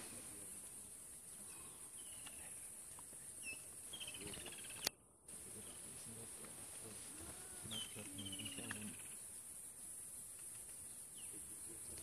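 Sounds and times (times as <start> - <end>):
high-pitched insect drone: 7.2 - 9.9.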